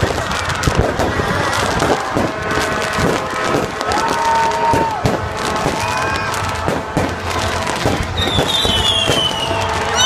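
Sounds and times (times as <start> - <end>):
firework bangs and crackling: 0.0 - 10.0
high falling whistle: 8.2 - 10.0.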